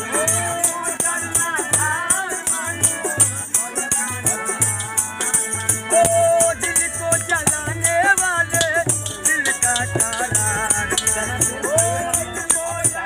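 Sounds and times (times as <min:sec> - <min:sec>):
harmonium: 0:00.0 - 0:13.0
man singing: 0:00.0 - 0:13.0
rattling percussion: 0:00.0 - 0:13.0
hand drum beat: 0:04.2 - 0:13.0.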